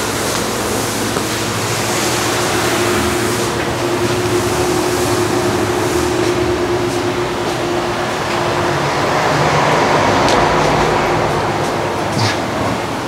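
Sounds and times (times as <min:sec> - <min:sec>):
workshop machinery hiss and hum: 0:00.0 - 0:13.0.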